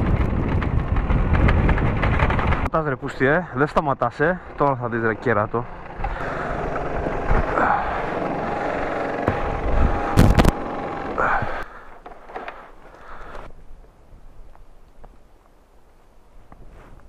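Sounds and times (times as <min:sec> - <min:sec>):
scooter engine running: 0:00.0 - 0:02.7, 0:04.2 - 0:11.7
wind noise: 0:00.0 - 0:03.0, 0:09.3 - 0:10.6, 0:13.2 - 0:17.0.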